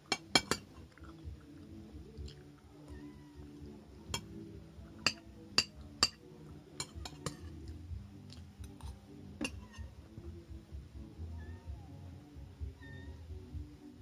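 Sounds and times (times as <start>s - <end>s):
spoon clinking on ceramic plate: 0.1s - 0.7s, 5.0s - 6.2s, 6.8s - 7.5s.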